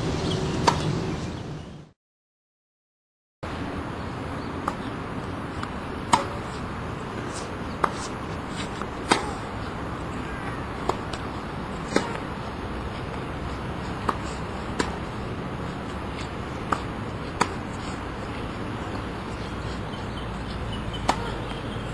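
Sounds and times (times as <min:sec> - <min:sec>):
tennis ball racket hits: 0:05.6 - 0:06.6, 0:07.2 - 0:09.5, 0:10.8 - 0:12.4, 0:13.8 - 0:19.5, 0:20.4 - 0:21.7.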